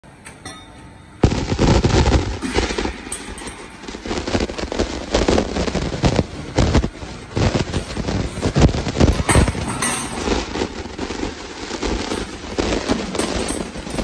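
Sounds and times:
steady machine hum: 0.0 - 14.0
machine clattering and banging: 7.4 - 14.0.

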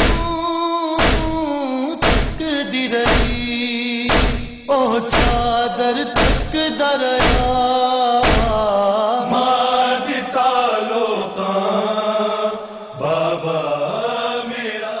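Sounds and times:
heavy thump: 0.0 - 0.4, 1.0 - 2.5, 3.1 - 5.6, 6.2 - 6.6, 7.2 - 8.7
solo voice chanting lament: 0.0 - 15.0.

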